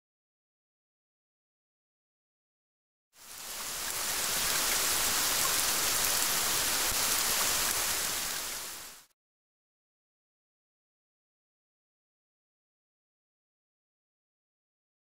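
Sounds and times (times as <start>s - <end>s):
rain falling: 3.2s - 9.1s.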